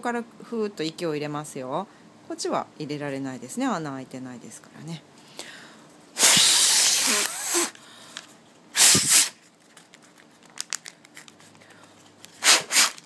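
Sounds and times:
person blowing into paper balloon: 6.2 - 7.8, 8.7 - 9.4, 12.4 - 13.0.

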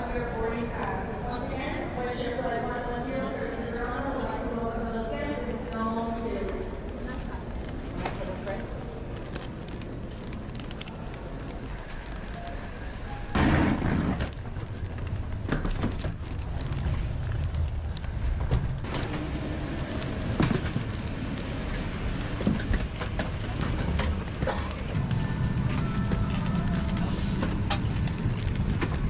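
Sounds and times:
airliner cabin rumble: 7.4 - 29.0.

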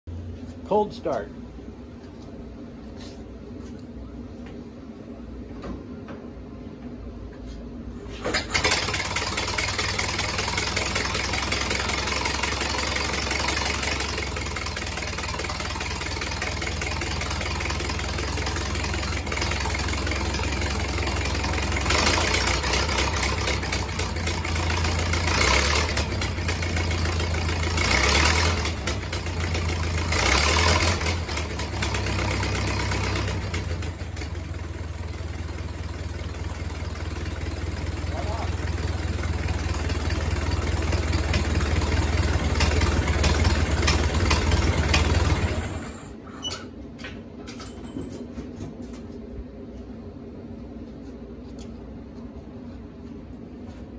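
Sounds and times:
antique car engine running: 8.1 - 46.2.

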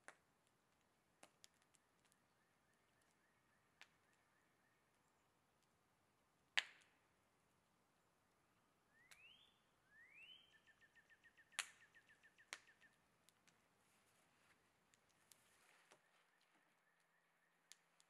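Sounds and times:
bird chirps: 1.7 - 5.3, 8.9 - 13.1, 15.2 - 18.0
bird whistling: 8.9 - 13.0.

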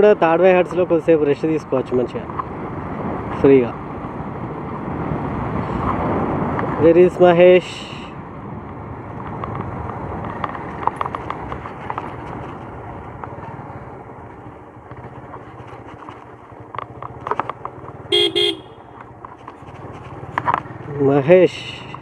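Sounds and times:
tyres on dirt road: 0.0 - 22.0
motorcycle engine: 8.6 - 22.0
motorcycle horn toot: 18.1 - 19.0.

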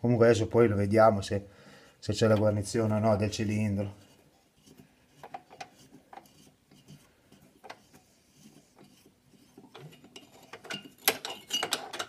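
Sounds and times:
metal clicks and rubbing: 4.0 - 12.0.

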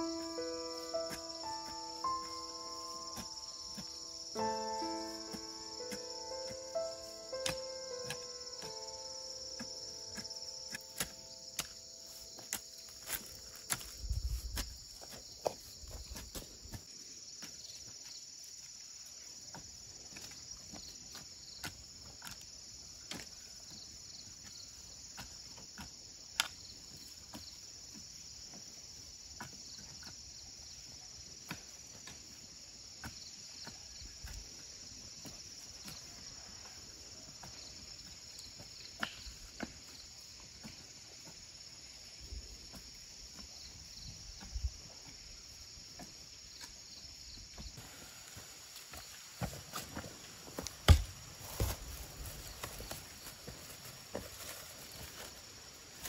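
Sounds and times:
hoe chopping dry soil: 0.0 - 17.7, 31.4 - 45.2, 47.4 - 53.4
insects chirring: 0.0 - 56.0.

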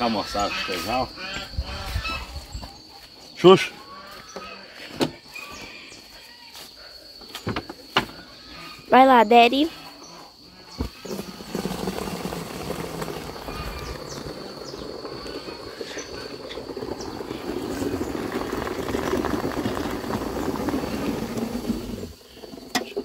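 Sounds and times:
milk squirting into foamy bucket: 10.9 - 22.2.

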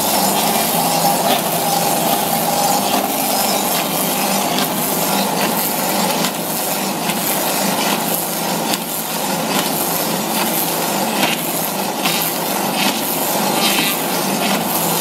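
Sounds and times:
milling machine cutting wood: 0.0 - 8.1.

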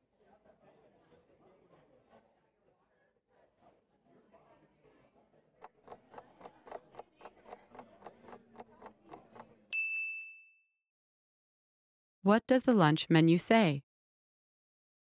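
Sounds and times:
clock ticking: 5.6 - 9.5
bright ding: 9.7 - 10.7.

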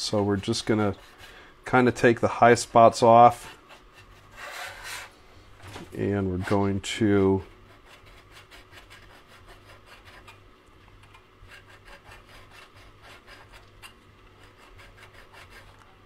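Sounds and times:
file rubbing on metal: 0.1 - 1.4, 3.2 - 5.2, 6.0 - 6.8, 7.5 - 10.4, 11.4 - 16.0.

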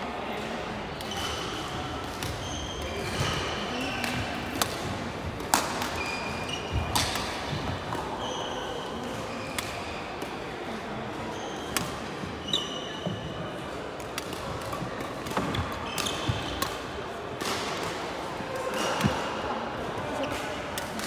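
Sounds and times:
shoe squeaks on wooden floor: 12.4 - 13.4.

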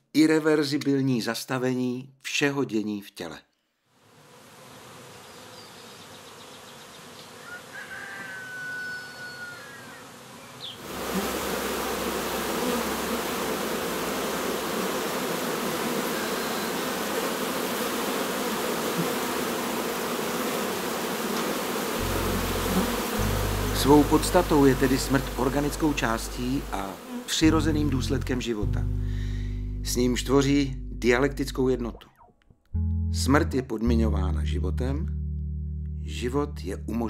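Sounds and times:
honeybees buzzing: 4.1 - 29.6
bird chirps: 8.0 - 10.8.

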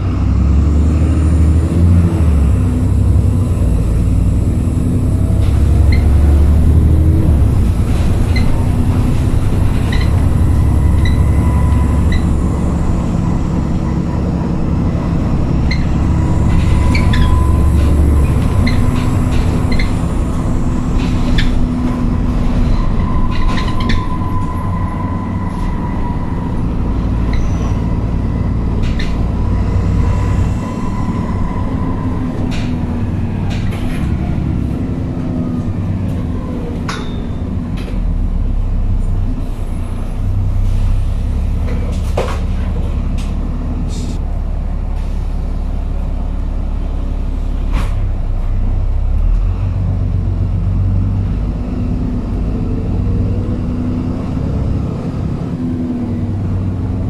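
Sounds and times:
bus diesel engine running: 0.0 - 57.0
interior rattles and knocks: 14.2 - 24.7.

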